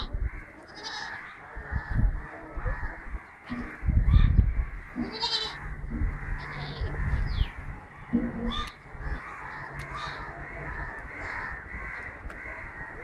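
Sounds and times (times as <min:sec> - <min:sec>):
goats bleating: 0:00.0 - 0:01.2, 0:04.9 - 0:07.4
low microphone rumbles: 0:01.4 - 0:13.0.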